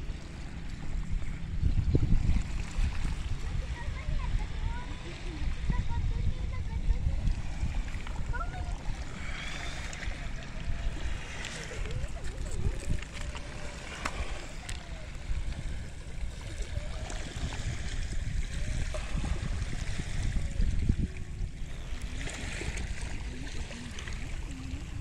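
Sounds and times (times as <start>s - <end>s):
water lapping and gurgling: 0.0s - 25.0s
wind on microphone: 0.0s - 25.0s.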